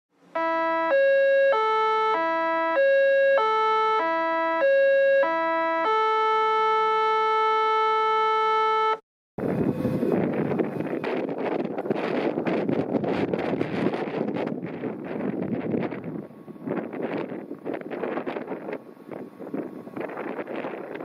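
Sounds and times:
wind noise on microphone: 9.4s - 21.0s.

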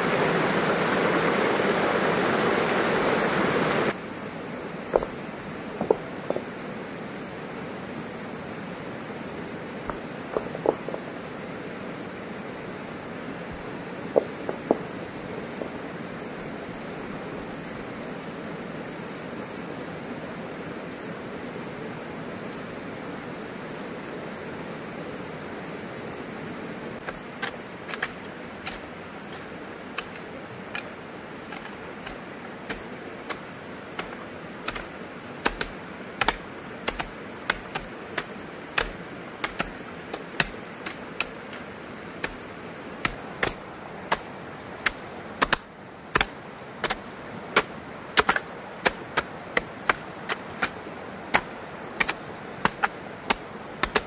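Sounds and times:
steady hiss: 0.0s - 54.0s
hand tool chopping: 27.0s - 30.9s, 31.5s - 33.4s, 34.0s - 42.4s, 43.0s - 44.2s, 44.8s - 45.6s, 47.6s - 54.0s.

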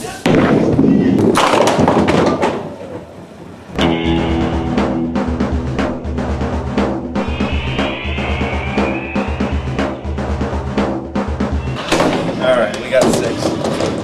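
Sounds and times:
music with steady drum beat: 3.8s - 11.8s.

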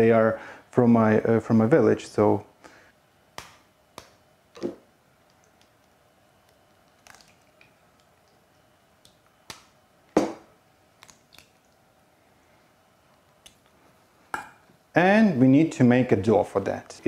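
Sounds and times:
eggs cracked on steel bowl: 3.4s - 8.4s.

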